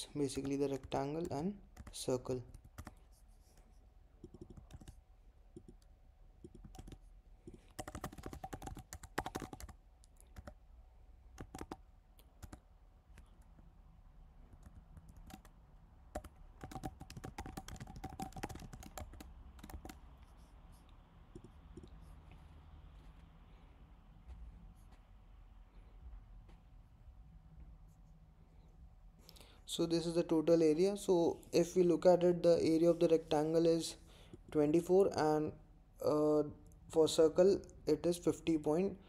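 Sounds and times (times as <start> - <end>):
computer keyboard typing: 0.3 - 3.0, 4.2 - 10.6, 11.4 - 11.8, 12.4 - 13.4, 14.5 - 22.0.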